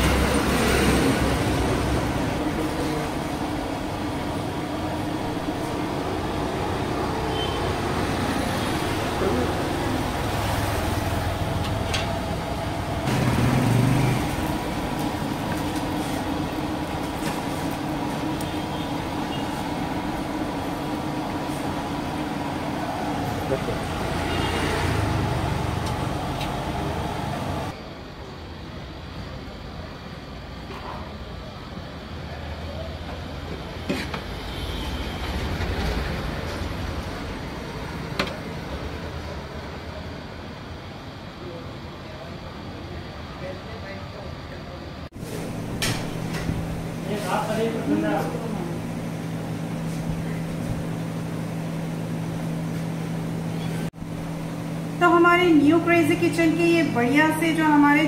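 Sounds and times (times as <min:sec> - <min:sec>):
street traffic rumble: 0:00.0 - 0:58.0.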